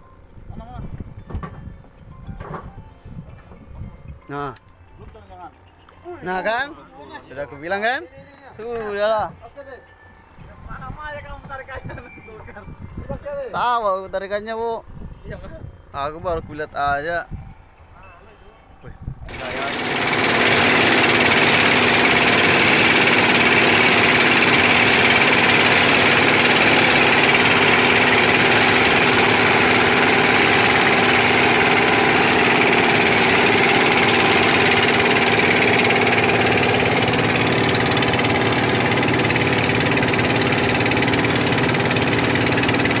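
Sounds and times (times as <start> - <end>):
boat engine humming: 19.3 - 43.0.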